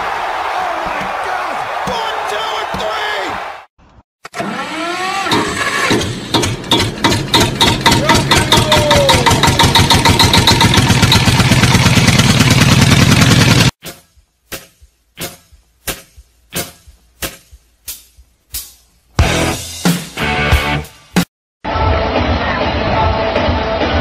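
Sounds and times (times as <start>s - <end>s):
car engine cranking: 4.3s - 13.6s.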